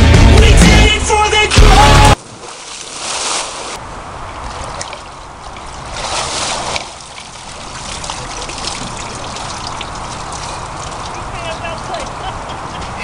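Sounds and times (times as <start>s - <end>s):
water splashing and sloshing: 1.5s - 13.0s
water trickling and dripping: 4.1s - 13.0s.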